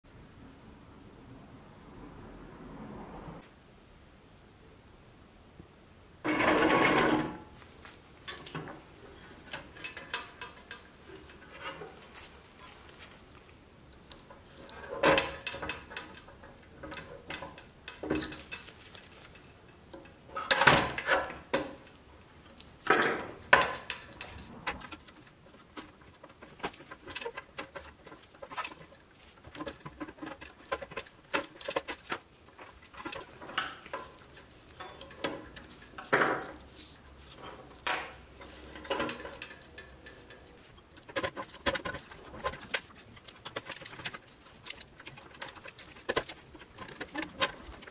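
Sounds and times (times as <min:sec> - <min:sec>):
metal pick scraping metal hubcaps: 0:06.3 - 0:07.4, 0:08.3 - 0:12.8, 0:22.9 - 0:47.9.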